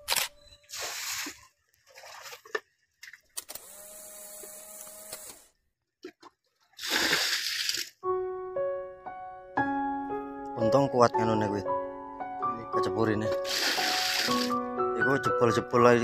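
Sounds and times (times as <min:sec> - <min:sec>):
water splashing and sloshing: 0:00.6 - 0:03.4, 0:05.9 - 0:08.0, 0:13.4 - 0:14.6.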